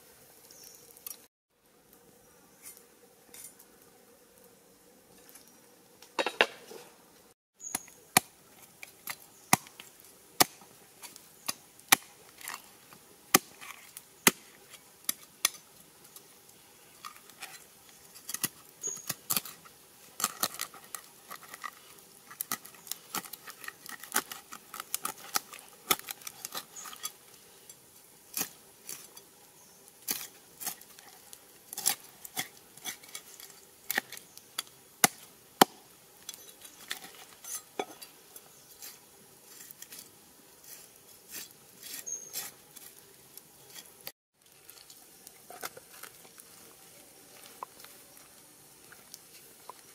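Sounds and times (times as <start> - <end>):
knife scraping and slicing fish: 38.8 - 43.0.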